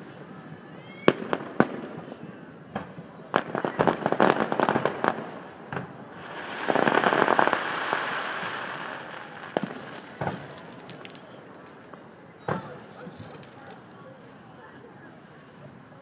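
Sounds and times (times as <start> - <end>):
firework bangs: 1.1 - 13.6
firework crackling: 1.1 - 13.9.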